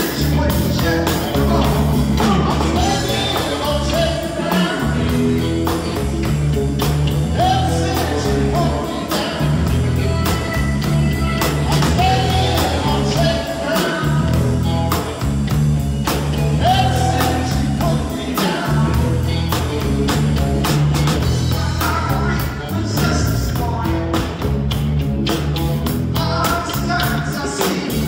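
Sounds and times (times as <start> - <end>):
person singing: 0.0 - 5.8, 7.3 - 15.0, 16.5 - 19.7, 21.2 - 24.3, 26.1 - 28.0
rock band playing: 0.0 - 28.0.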